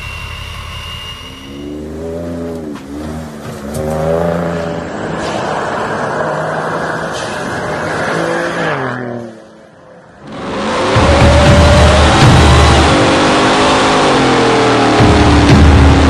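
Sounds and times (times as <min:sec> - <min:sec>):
truck engine revving: 0:01.6 - 0:16.0.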